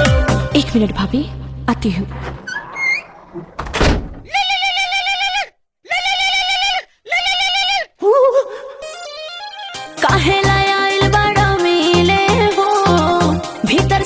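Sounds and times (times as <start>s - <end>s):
door banging shut: 2.0s - 4.4s.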